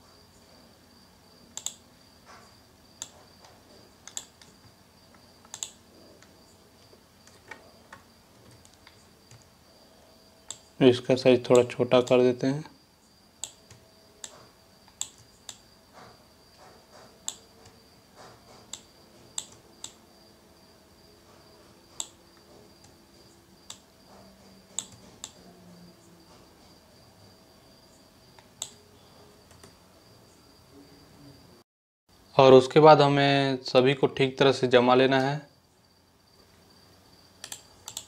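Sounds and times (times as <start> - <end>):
computer mouse clicking: 1.5 - 1.8, 3.0 - 6.3, 7.2 - 9.5, 10.5 - 10.7, 13.4 - 20.0, 21.9 - 23.0, 23.6 - 23.9, 24.7 - 25.4, 28.4 - 28.8, 29.5 - 29.8, 37.4 - 38.0.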